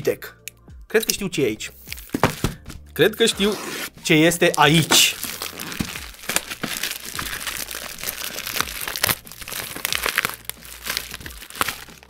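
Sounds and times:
packaging crinkling and rustling: 4.1s - 12.0s.

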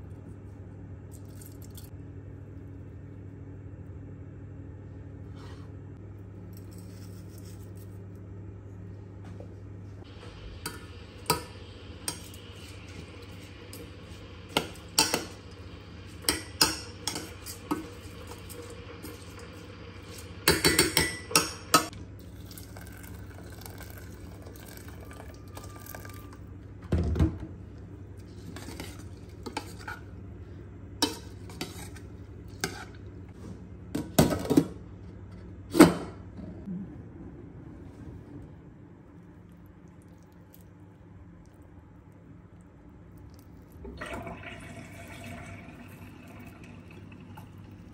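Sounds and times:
water pouring: 22.2s - 26.3s, 43.7s - 47.9s.

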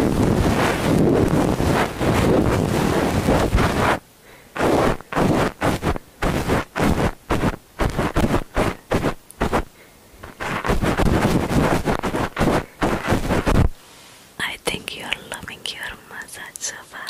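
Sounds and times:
cotton rubbing on microphone: 0.0s - 4.0s, 4.6s - 13.8s.

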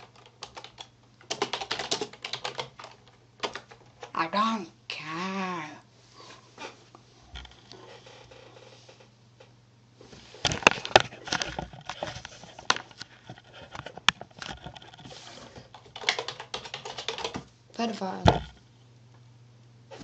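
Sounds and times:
computer keyboard typing: 0.0s - 4.2s, 15.7s - 17.5s
low electrical hum: 0.0s - 20.0s.

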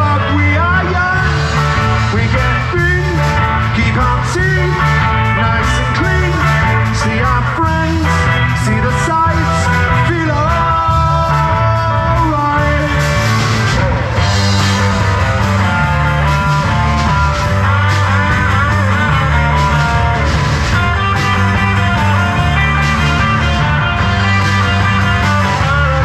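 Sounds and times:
man singing into a microphone: 0.0s - 13.8s
drums: 0.0s - 26.0s
electric guitars: 0.0s - 26.0s.

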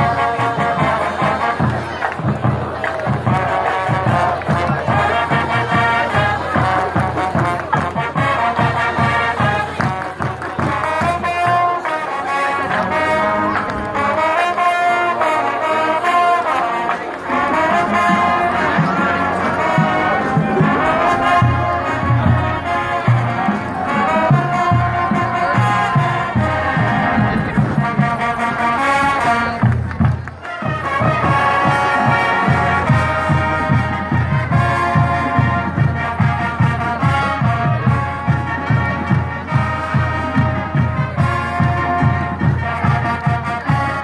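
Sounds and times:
brass playing tune: 0.0s - 44.0s
steady drum beat: 17.0s - 43.4s.

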